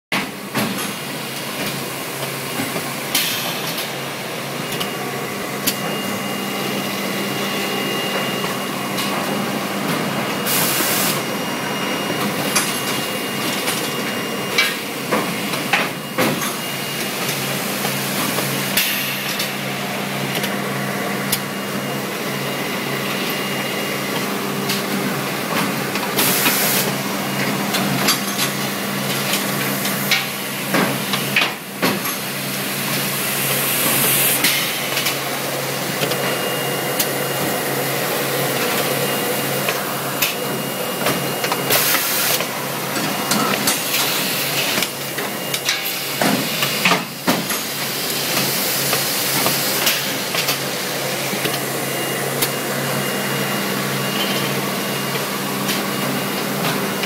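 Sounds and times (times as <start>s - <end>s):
machine humming: 32.3s - 46.8s.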